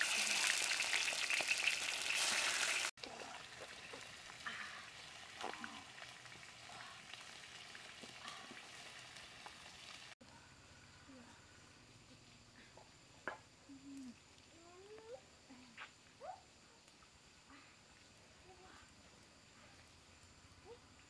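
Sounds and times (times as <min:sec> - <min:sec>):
fish sizzling in hot oil: 0:00.0 - 0:10.2.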